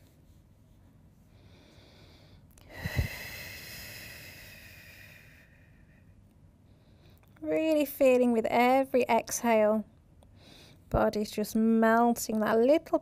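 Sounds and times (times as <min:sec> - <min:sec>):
woman exhaling: 0:01.8 - 0:06.0.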